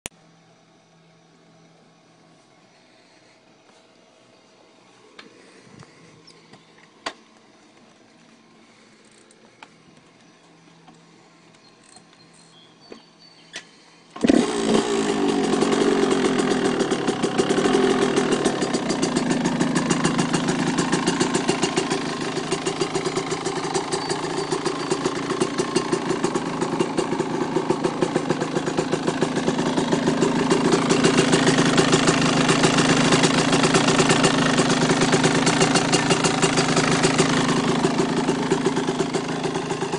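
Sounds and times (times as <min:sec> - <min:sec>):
two-stroke engine running: 0:11.4 - 0:39.9.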